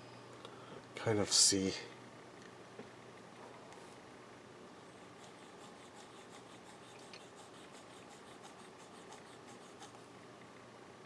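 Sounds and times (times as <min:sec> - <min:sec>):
pencil scratching on paper: 0:05.1 - 0:10.0.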